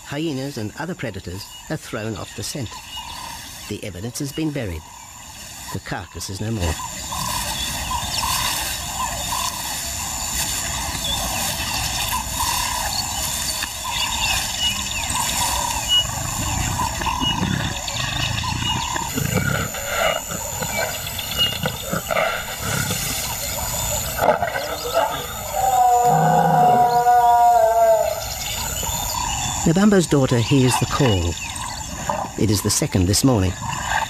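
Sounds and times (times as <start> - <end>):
lion roaring: 14.6 - 29.7.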